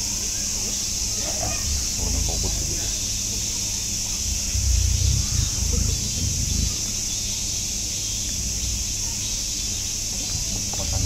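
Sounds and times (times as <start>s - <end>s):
cicada chorus drone: 0.0s - 11.0s
low rumble: 1.2s - 11.0s.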